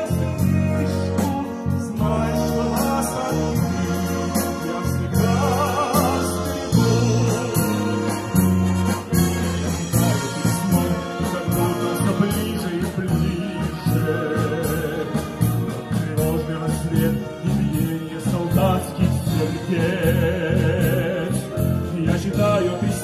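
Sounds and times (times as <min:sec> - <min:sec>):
wind band playing slow song: 0:00.0 - 0:23.0.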